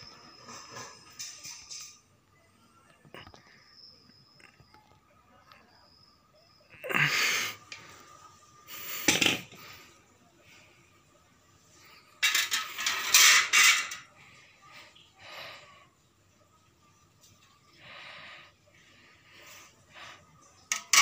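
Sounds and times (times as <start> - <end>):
metal fan blades clinking on tile: 0.0 - 2.2, 12.0 - 14.3, 20.4 - 21.0.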